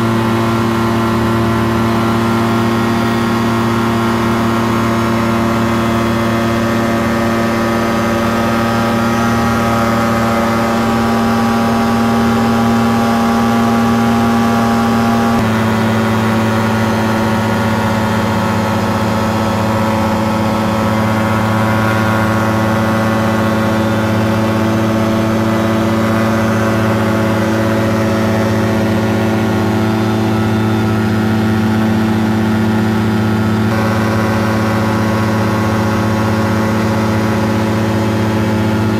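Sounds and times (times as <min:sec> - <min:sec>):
aircraft engine and propeller droning: 0:00.0 - 0:38.9.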